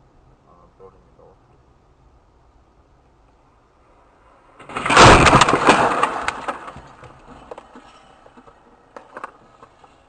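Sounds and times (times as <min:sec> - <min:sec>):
loud car crash: 0:04.6 - 0:07.5
debris striking windshield: 0:04.6 - 0:07.8.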